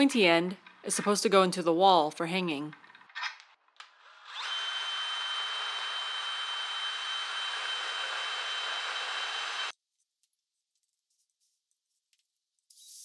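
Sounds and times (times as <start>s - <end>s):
cordless drill whining: 3.8s - 9.7s.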